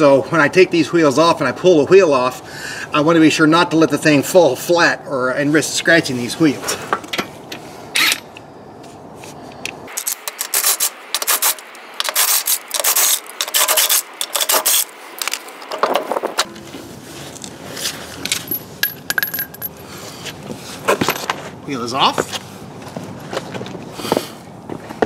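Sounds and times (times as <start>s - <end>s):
metallic clicks and scraping: 9.6s - 16.7s
impact wrench removing lug nuts: 10.0s - 16.6s.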